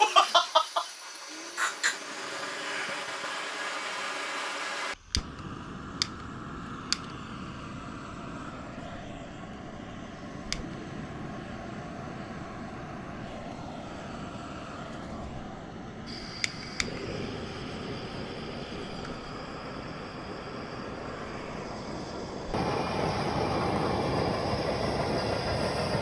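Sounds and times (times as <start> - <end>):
gas burners hissing: 0.0 - 26.0
sharp clicks: 4.9 - 7.2.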